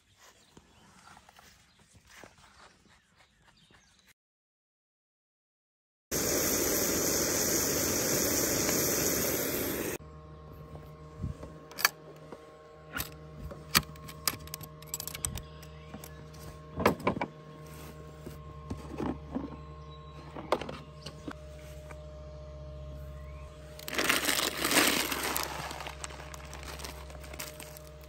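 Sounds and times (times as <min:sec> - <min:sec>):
loud steady hiss: 0:06.1 - 0:10.0
items handled inside cooler: 0:16.9 - 0:21.5, 0:23.8 - 0:28.0.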